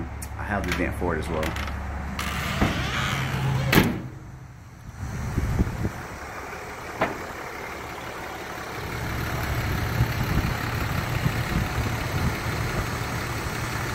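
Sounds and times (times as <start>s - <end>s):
truck engine idling: 0.0s - 13.9s.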